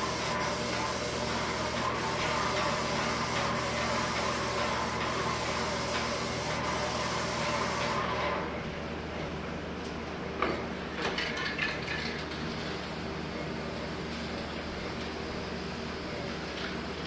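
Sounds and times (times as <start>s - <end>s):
paint sprayer hissing: 0.0s - 8.3s.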